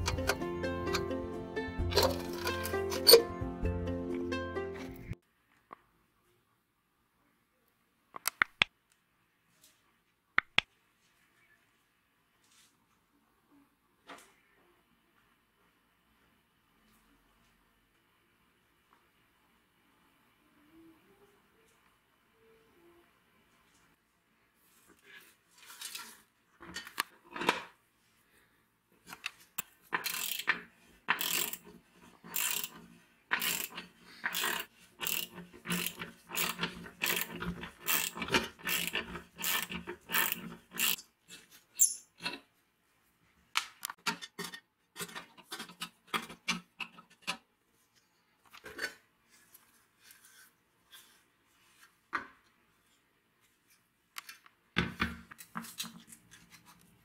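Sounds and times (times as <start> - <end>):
metal parts clicking and knocking: 0.0 - 1.0, 1.9 - 3.2, 29.6 - 41.0
ratchet wrench clicking: 30.0 - 30.5, 31.2 - 31.6, 32.3 - 32.7, 33.4 - 41.0.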